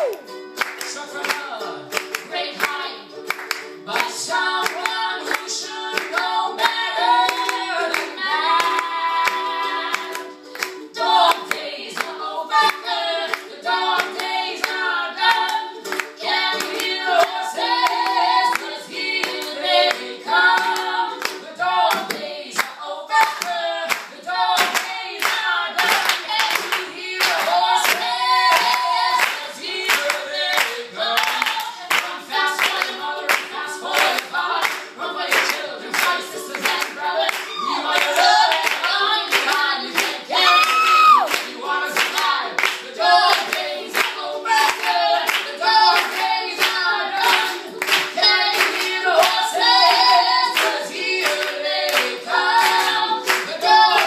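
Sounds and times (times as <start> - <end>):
rhythmic handclaps: 0.0 - 54.0
strummed acoustic string instrument: 0.2 - 40.4
woman and man singing: 0.8 - 3.2, 3.9 - 10.3, 10.9 - 54.0.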